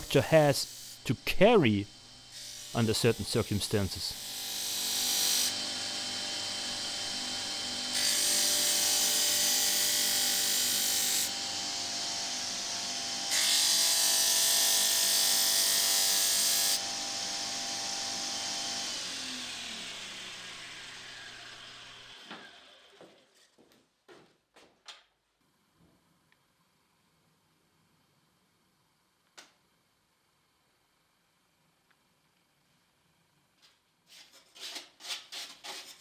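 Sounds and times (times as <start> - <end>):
disc sander running: 4.2 - 10.6, 14.6 - 23.0
sander motor winding down: 16.8 - 23.0.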